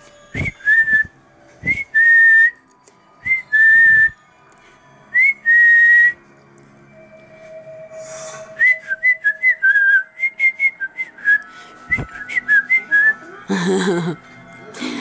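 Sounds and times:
person whistling: 0.4s - 2.6s, 3.2s - 4.2s, 5.2s - 6.2s, 8.1s - 13.2s.

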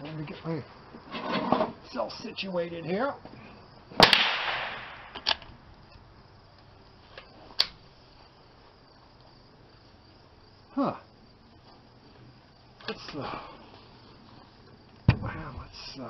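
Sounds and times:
faint steady background noise: 0.0s - 16.0s
echo of loud bang: 4.0s - 5.2s
rifle handling clicks and knocks: 5.1s - 5.5s.

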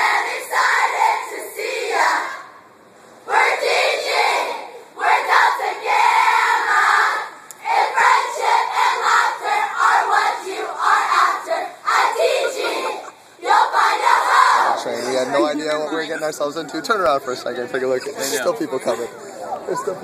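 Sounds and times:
young women shouting and chanting: 3.3s - 14.9s.

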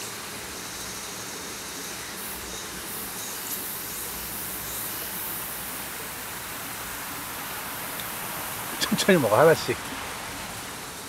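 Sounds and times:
stream running over rocks: 4.6s - 11.0s.

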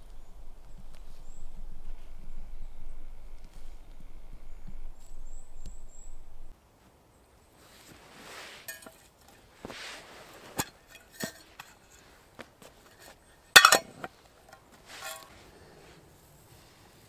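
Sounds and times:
soft rustling: 0.0s - 17.0s
metal cookware clinking: 10.6s - 12.0s, 12.9s - 14.1s, 15.0s - 15.3s.

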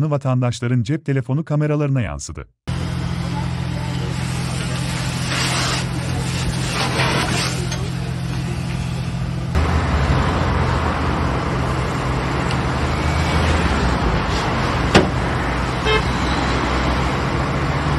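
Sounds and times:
road vehicle engine rumble: 2.7s - 17.9s
sharp knock: 14.9s - 15.2s.

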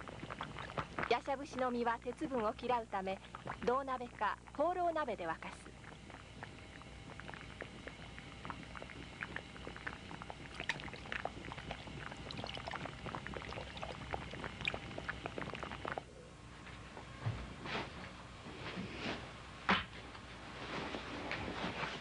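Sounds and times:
liquid bubbling in a pot: 0.0s - 16.1s.

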